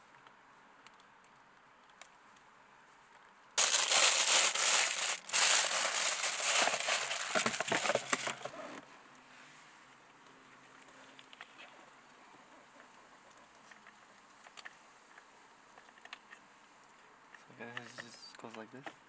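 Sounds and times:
plastic bag crinkling: 3.6s - 8.5s.

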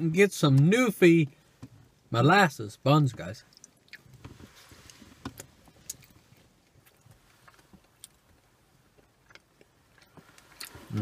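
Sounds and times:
mouth clicks and smacks: 3.4s - 4.2s, 5.4s - 6.2s
quiet chewing: 3.4s - 11.0s.

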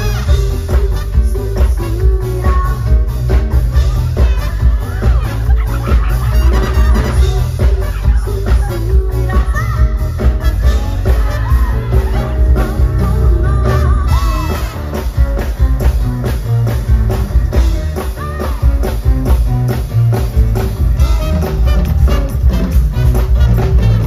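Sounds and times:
woman singing: 0.0s - 3.5s, 7.1s - 15.0s
trumpet and saxophone: 0.0s - 15.4s, 21.0s - 24.0s
drum kit beat: 0.0s - 24.0s
electric guitars: 0.0s - 24.0s.

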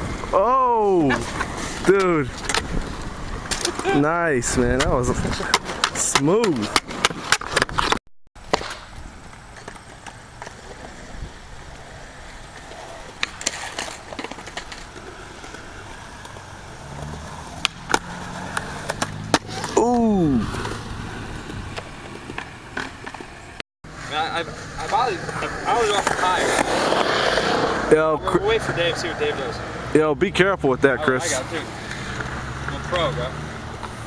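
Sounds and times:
skateboard wheels rolling on concrete: 0.0s - 34.0s
skateboard deck clacking on ground: 4.8s - 10.9s, 12.6s - 16.4s.

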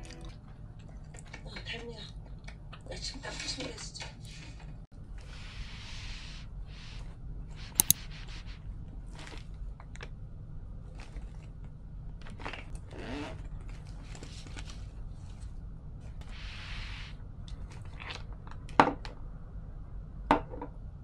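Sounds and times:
sharp clicks: 7.8s - 8.0s.

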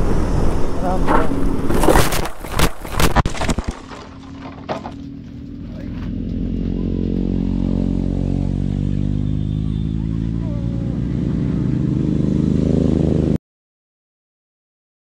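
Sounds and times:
clattering and scraping knocks: 1.0s - 5.6s
motorcycle engine running: 3.9s - 13.4s.

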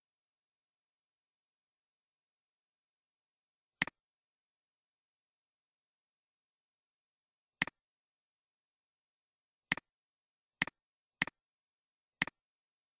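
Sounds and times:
computer mouse clicks: 9.7s - 9.9s, 12.2s - 12.4s.

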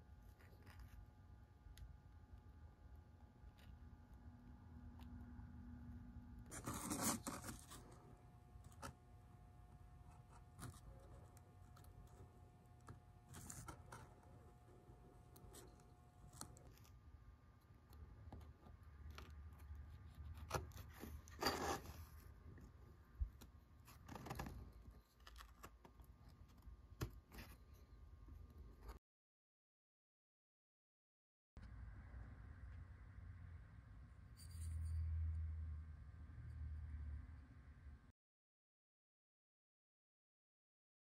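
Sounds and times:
knife scraping wood: 6.5s - 7.9s, 19.9s - 22.2s.

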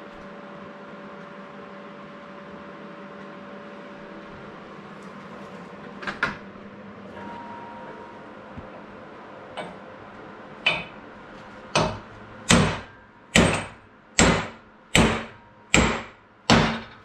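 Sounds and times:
hammer striking metal drift: 11.8s - 17.0s.

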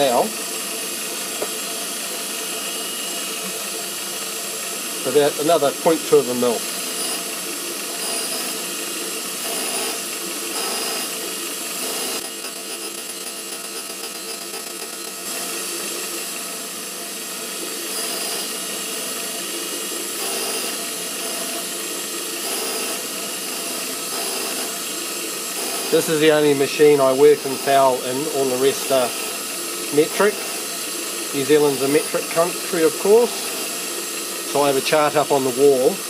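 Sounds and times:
surface grinder grinding steel: 0.0s - 36.0s.

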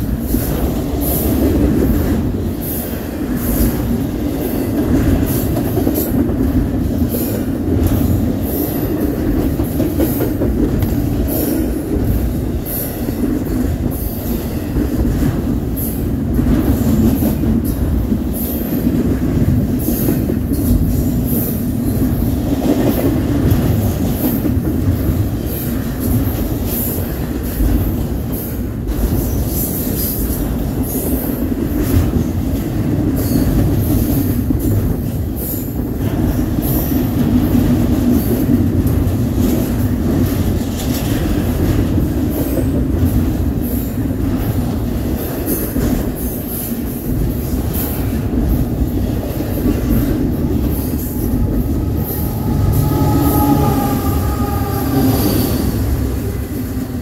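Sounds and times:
freight train rumbling past: 0.0s - 57.0s
high-pitched metallic squeals: 50.7s - 57.0s.

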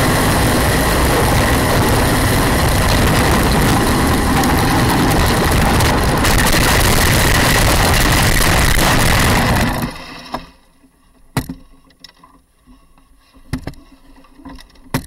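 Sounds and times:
cart sliding through gravel: 0.0s - 10.3s.

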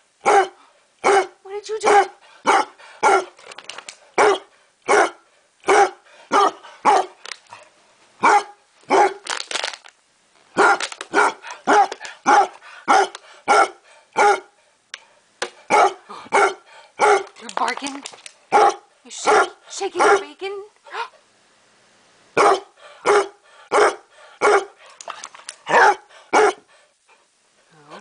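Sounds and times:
dog barking: 0.2s - 3.3s, 4.2s - 7.2s, 8.2s - 9.2s, 10.6s - 14.6s, 15.7s - 17.3s, 18.5s - 20.3s, 22.4s - 24.8s, 25.7s - 26.7s.

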